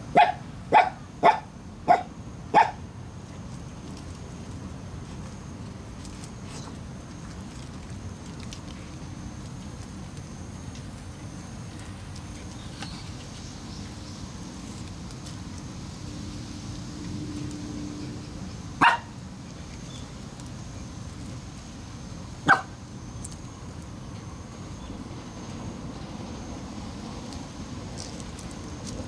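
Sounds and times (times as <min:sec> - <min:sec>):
dog barking: 0:00.1 - 0:02.8, 0:18.8 - 0:19.1, 0:22.5 - 0:22.8.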